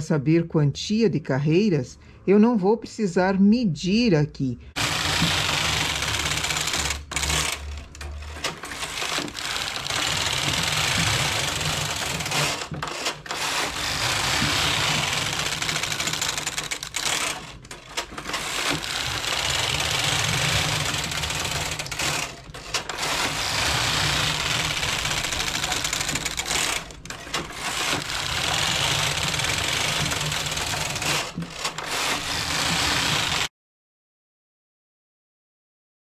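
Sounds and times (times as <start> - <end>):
knitting machine carriage moving: 4.7 - 33.5.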